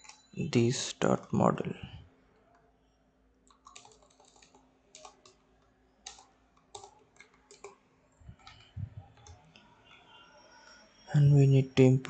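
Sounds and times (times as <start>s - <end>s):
computer keyboard keys clicking: 3.5s - 5.4s, 6.0s - 7.8s.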